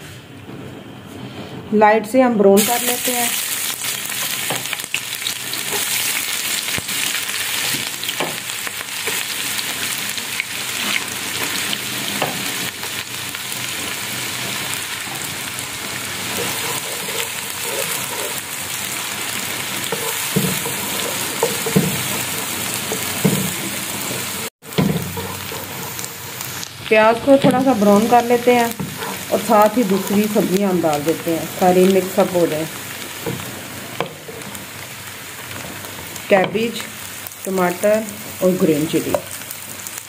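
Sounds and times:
onions sizzling in hot oil: 2.6s - 40.0s
wooden spatula scraping a pan: 16.2s - 26.6s, 27.3s - 30.5s.

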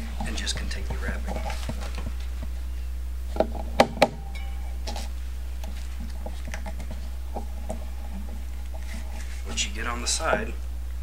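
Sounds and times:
steady low hum: 0.0s - 11.0s
sharp knocks: 3.4s - 4.5s.

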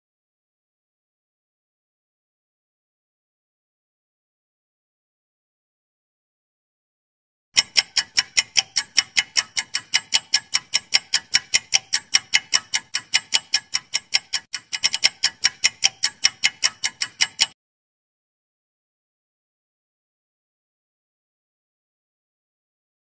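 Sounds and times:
fast clock ticking: 7.6s - 17.6s.

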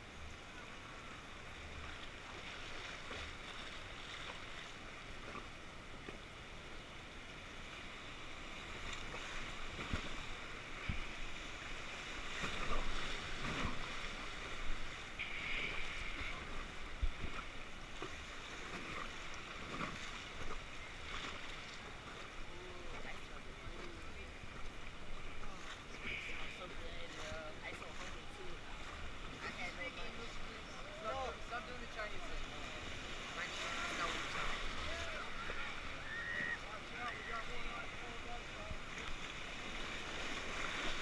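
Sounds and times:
river rapids rushing: 29.4s - 41.0s.

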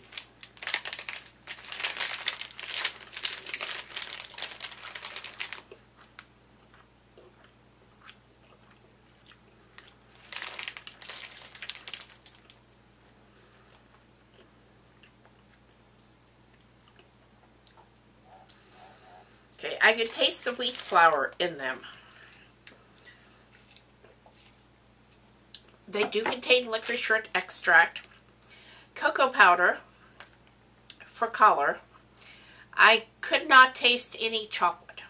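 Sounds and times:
plastic bag crinkling: 0.0s - 6.3s, 9.7s - 12.6s, 19.6s - 24.5s, 26.4s - 28.1s.

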